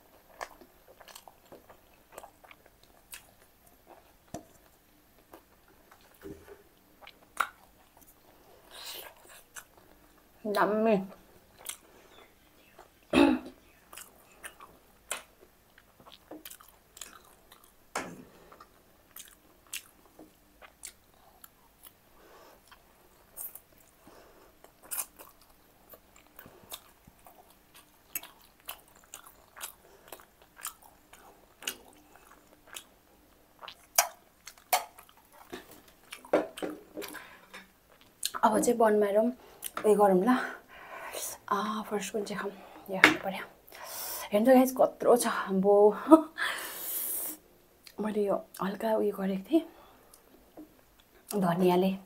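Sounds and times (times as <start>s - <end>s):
wet chewing noodles: 0.0s - 6.2s, 7.0s - 10.3s, 11.0s - 38.5s
mouth clicks and smacks: 33.6s - 37.2s.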